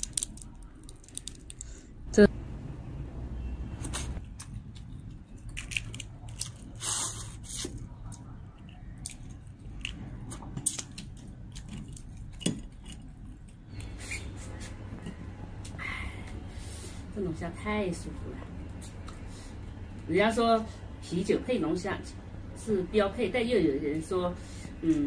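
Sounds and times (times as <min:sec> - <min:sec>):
crayfish shells cracking: 0:00.0 - 0:01.8, 0:04.3 - 0:06.8, 0:08.1 - 0:13.9.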